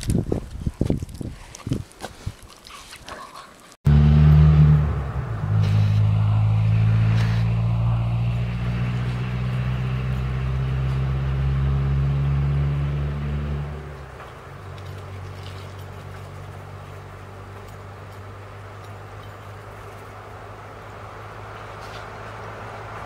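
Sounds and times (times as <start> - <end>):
low engine hum: 3.9 - 23.0.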